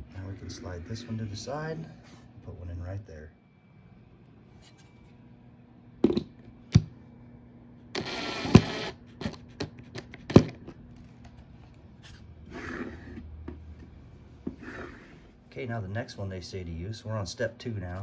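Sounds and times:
cordless drill driving screw: 8.0 - 9.0.

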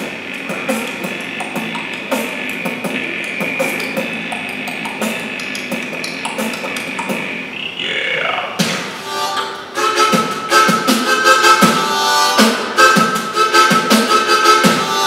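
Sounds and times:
beatboxing drum beats: 0.0 - 9.1, 9.8 - 15.0
steady high tone: 6.1 - 15.0.

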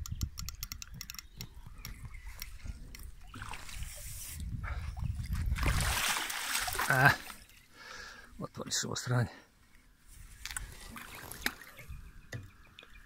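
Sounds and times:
water splashing and dripping: 2.4 - 4.2, 5.2 - 7.5, 10.4 - 13.0.

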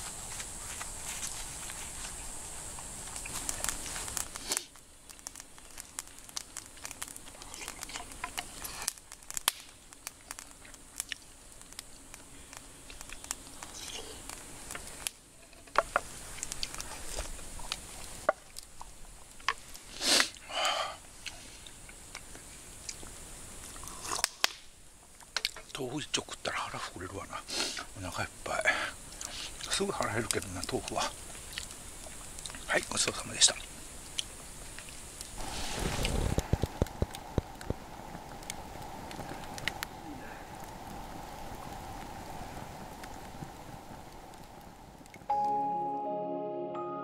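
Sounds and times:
steady hiss: 0.0 - 45.6.

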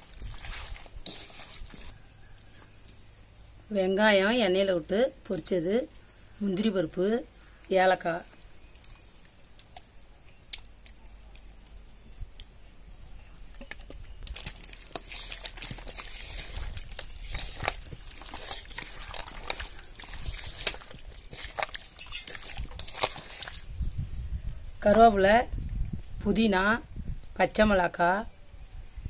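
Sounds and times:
hand squishing wet meat: 0.0 - 1.9, 13.6 - 23.8.

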